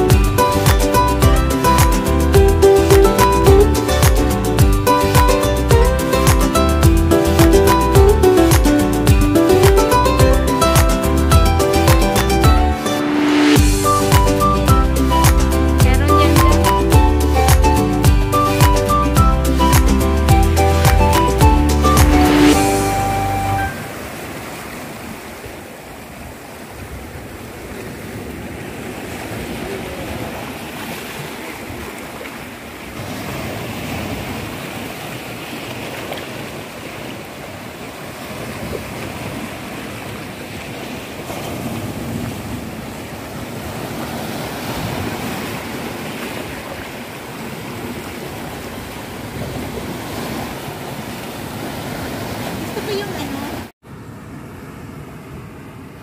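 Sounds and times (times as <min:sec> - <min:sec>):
waves breaking over rocks: 0:23.7 - 0:53.7.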